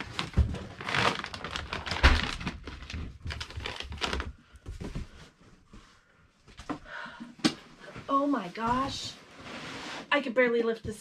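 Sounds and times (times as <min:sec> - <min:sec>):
packaging rustling and crackling: 0:00.0 - 0:04.4.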